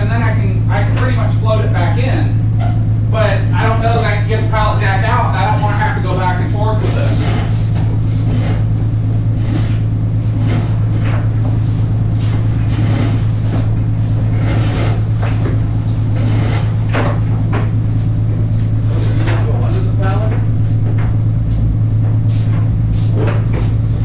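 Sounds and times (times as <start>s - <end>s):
truck engine idling: 0.0s - 24.0s
footsteps on wooden floor: 10.3s - 24.0s.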